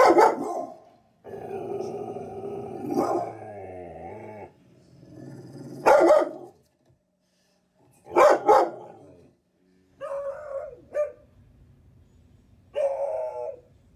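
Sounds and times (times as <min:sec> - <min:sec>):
dog barking: 0:00.0 - 0:00.9, 0:02.9 - 0:03.4, 0:05.8 - 0:06.6, 0:08.1 - 0:09.1, 0:10.0 - 0:11.3.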